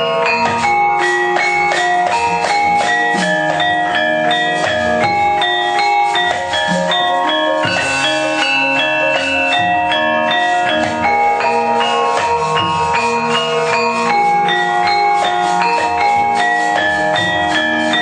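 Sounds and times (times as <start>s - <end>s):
metallophones ringing: 0.0s - 18.0s.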